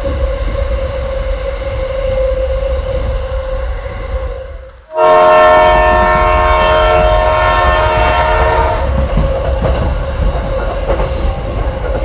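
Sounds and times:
toy train rumbling on track: 0:00.0 - 0:12.0
train horn blast: 0:03.8 - 0:09.1.

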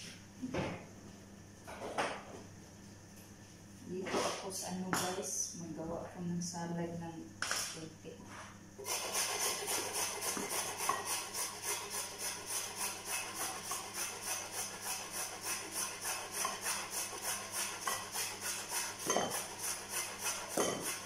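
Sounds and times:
carrot rasping on box grater: 0:08.8 - 0:21.0.

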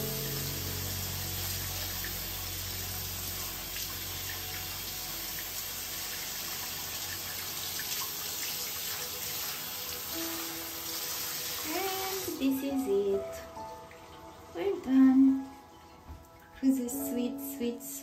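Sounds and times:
tap water running into sink: 0:00.0 - 0:12.4.

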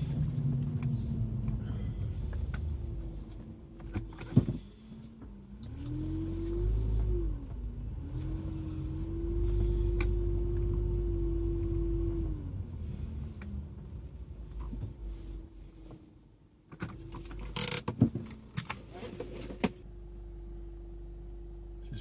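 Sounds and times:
car engine idling: 0:00.0 - 0:15.8
car engine droning: 0:00.0 - 0:16.1, 0:16.8 - 0:22.0.

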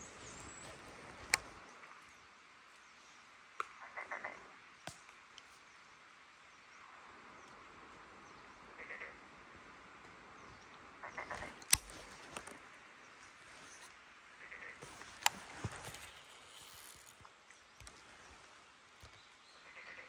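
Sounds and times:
frog croaking: 0:03.6 - 0:04.6, 0:08.8 - 0:09.2, 0:11.0 - 0:11.7, 0:14.4 - 0:16.9, 0:19.6 - 0:20.0
sharp clicks: 0:11.4 - 0:12.6.

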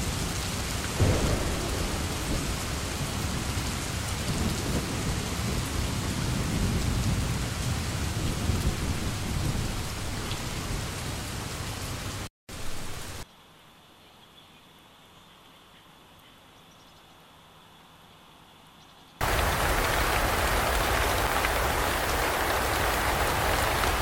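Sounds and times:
heavy rain: 0:00.0 - 0:13.2, 0:19.2 - 0:24.0
low thunder rumbling: 0:00.1 - 0:11.2, 0:19.2 - 0:24.0
faint steady hiss: 0:12.5 - 0:24.0.

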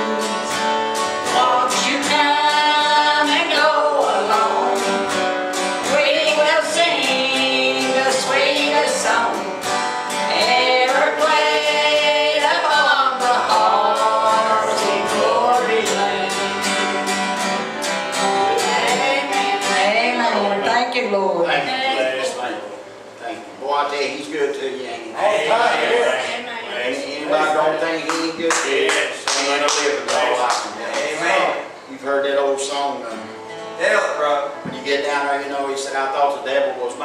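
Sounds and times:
gospel group singing: 0:00.0 - 0:22.8, 0:24.6 - 0:31.9
acoustic guitar strumming: 0:00.0 - 0:24.2, 0:25.0 - 0:37.0.

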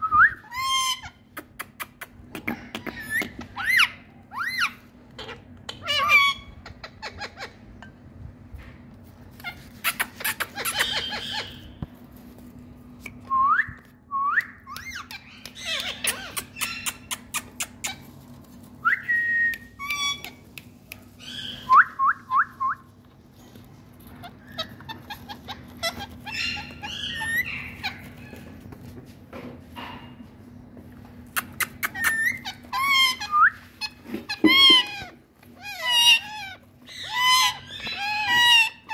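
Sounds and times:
parakeets calling: 0:00.5 - 0:01.3, 0:02.4 - 0:07.8, 0:09.3 - 0:11.9, 0:14.7 - 0:18.2, 0:21.2 - 0:21.8, 0:23.6 - 0:28.8, 0:31.4 - 0:38.9.

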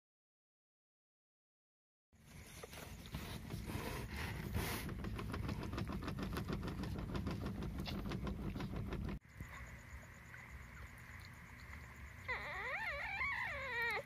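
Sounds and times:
puppies suckling clicks and smacks: 0:04.8 - 0:14.0.

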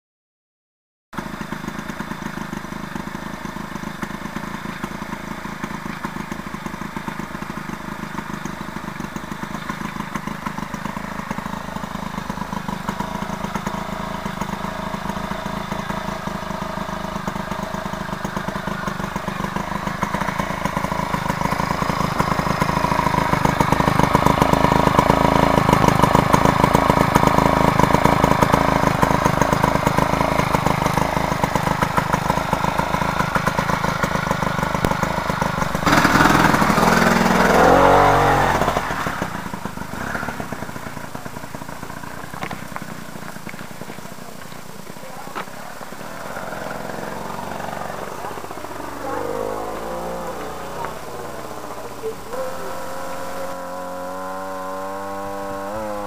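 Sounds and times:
two-stroke engine running: 0:01.2 - 0:56.0.

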